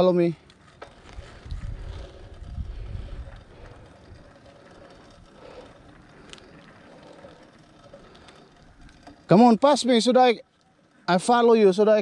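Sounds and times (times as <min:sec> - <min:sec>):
wind buffeting microphone: 0:01.1 - 0:04.4.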